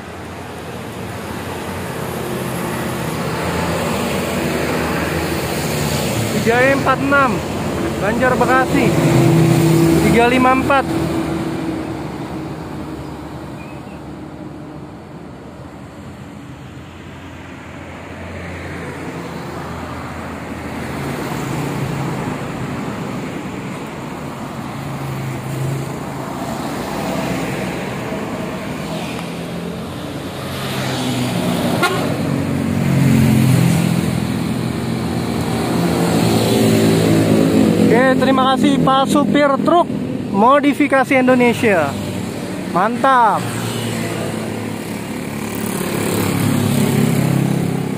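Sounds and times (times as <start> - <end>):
traffic passing: 0.0 - 47.9
vehicle horn tooting: 31.8 - 32.2.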